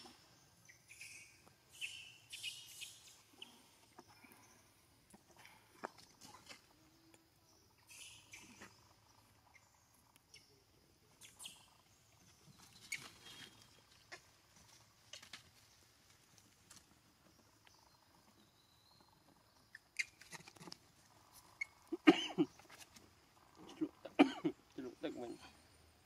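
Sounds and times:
faint rustles: 11.4s - 18.4s.

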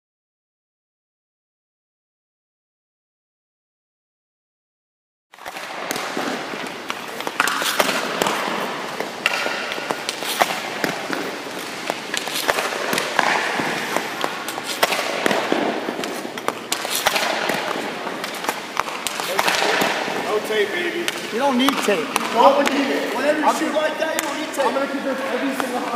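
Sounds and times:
hockey stick hitting puck: 5.4s - 25.9s
noisy rink background: 5.4s - 25.9s
pucks hitting pads and boards: 5.4s - 25.9s.

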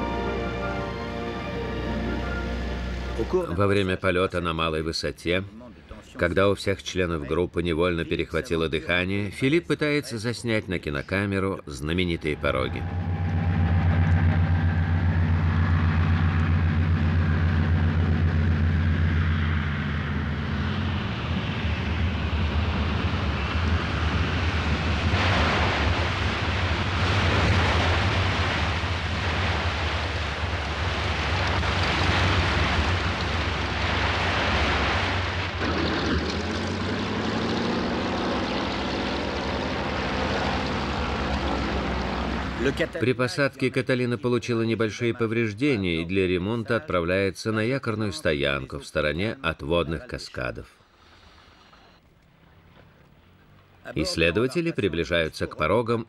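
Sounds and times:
aircraft engines droning: 0.0s - 3.6s, 11.9s - 43.0s
water spray rushing: 22.0s - 42.9s.

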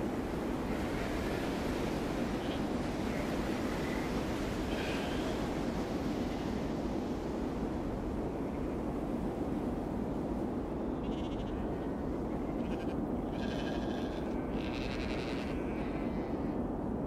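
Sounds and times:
sheep bleating: 11.0s - 11.6s, 12.6s - 16.3s.

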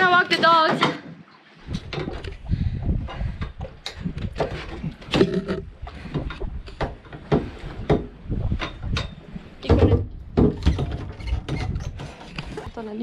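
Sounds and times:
wind buffeting microphone: 1.6s - 13.0s
boat knocking against hull: 2.9s - 12.2s.

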